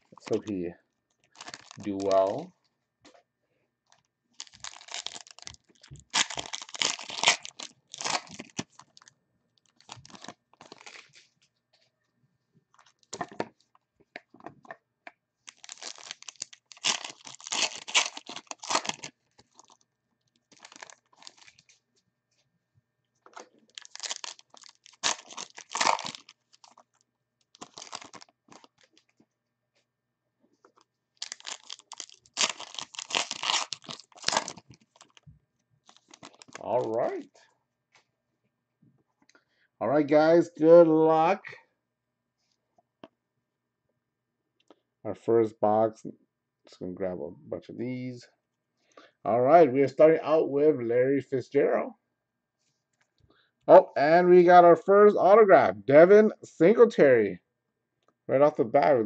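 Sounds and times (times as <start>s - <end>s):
plastic wrapping tearing and crumpling: 1.3s - 2.3s, 4.4s - 11.2s, 15.5s - 19.8s, 20.4s - 21.7s, 23.3s - 29.1s, 31.2s - 35.2s, 35.8s - 37.2s.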